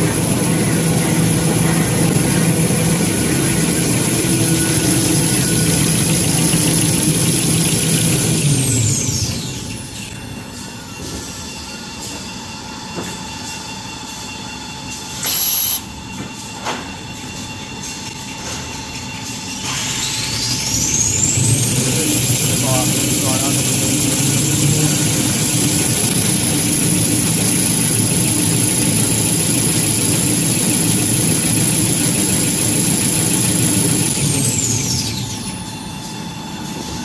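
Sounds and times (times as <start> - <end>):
machine line humming: 0.0 - 11.0, 19.6 - 37.0
high machine whine: 0.0 - 37.0.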